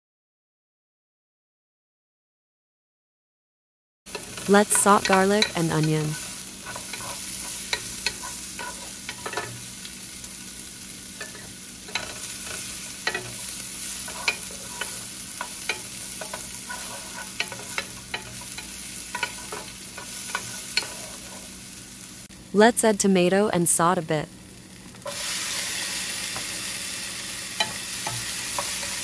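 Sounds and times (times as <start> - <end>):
garlic and onion sizzling in pan: 4.1 - 29.0
wooden spatula scraping pan: 6.1 - 9.6, 11.2 - 21.5.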